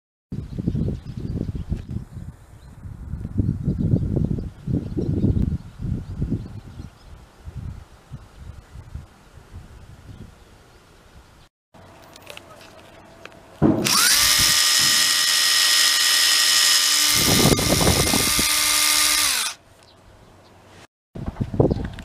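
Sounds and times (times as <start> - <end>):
impact driver motor whine: 13.8 - 19.6.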